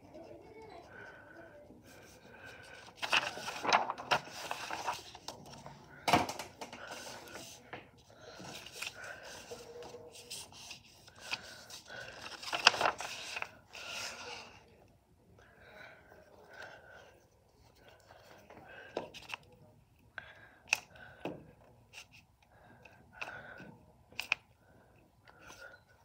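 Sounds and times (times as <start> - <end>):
paper rustling and rubbing: 1.9 - 5.7, 6.8 - 7.6, 8.3 - 14.6.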